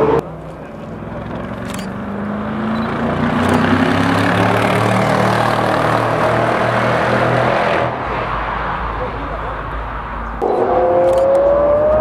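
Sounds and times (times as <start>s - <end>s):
sports car engine driving by: 10.4s - 12.0s.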